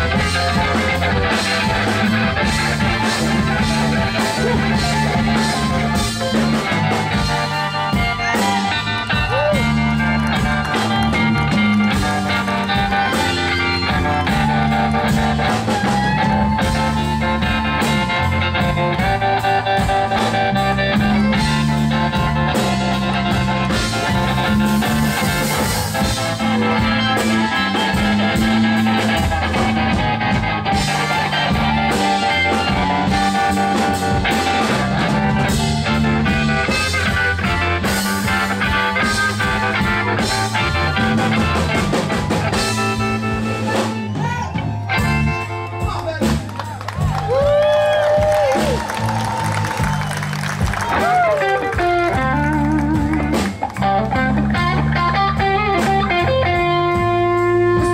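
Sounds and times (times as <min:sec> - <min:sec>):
amplified blues harmonica: 0:00.0 - 0:45.9, 0:47.4 - 0:57.9
bass line: 0:00.0 - 0:57.9
blues band playing: 0:00.0 - 0:57.9.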